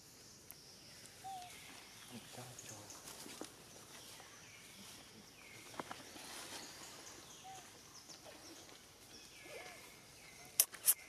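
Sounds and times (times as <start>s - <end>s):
faint chirping animal calls: 1.0s - 2.4s.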